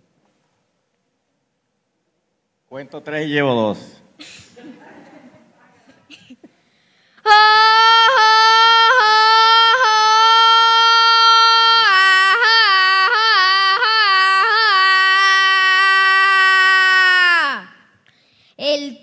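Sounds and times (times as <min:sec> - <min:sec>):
boy singing yodel-like call: 0:07.2 - 0:17.9.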